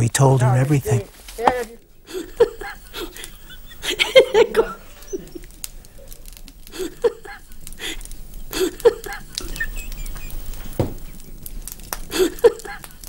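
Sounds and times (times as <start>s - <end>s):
woman chuckling softly: 2.1s - 5.6s, 8.5s - 10.6s, 12.1s - 12.9s
knock: 10.8s - 11.0s.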